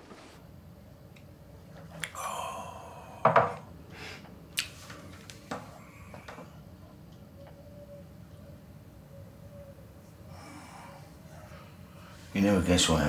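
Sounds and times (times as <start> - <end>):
crockery clinking and knocking: 3.2 - 3.6.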